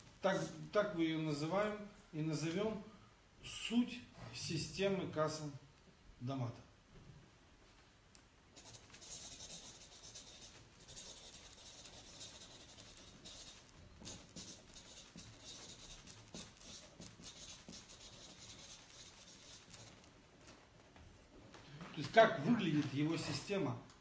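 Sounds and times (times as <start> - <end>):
marker scratching on paper: 0.3 - 0.6, 8.6 - 20.1
pen writing on notepad: 8.6 - 20.1.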